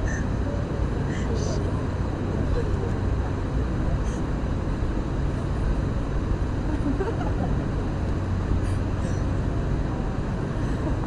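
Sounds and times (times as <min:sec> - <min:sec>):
faint voices: 0:00.0 - 0:05.6.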